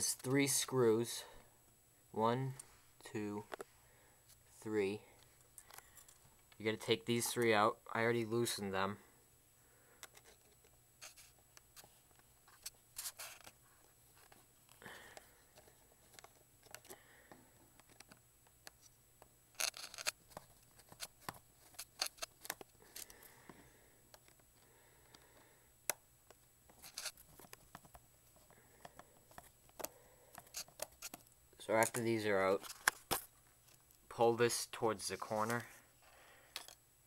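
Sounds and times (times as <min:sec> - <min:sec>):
screwdriver scraping: 0:19.6 - 0:20.2, 0:26.8 - 0:27.2, 0:29.8 - 0:31.2.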